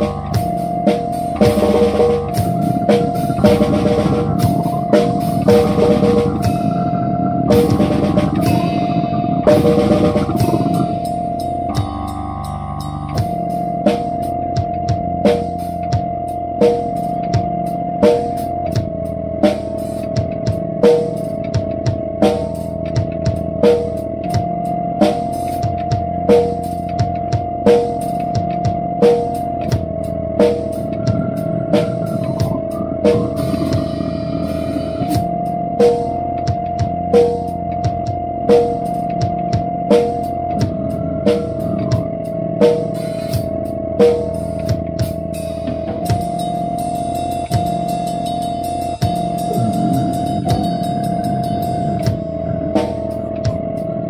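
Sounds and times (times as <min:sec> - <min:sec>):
steady held note: 0:00.0 - 0:14.8, 0:29.3 - 0:44.0, 0:46.3 - 0:54.0
drum kit steady beat: 0:00.0 - 0:54.0
guitar: 0:00.0 - 0:54.0.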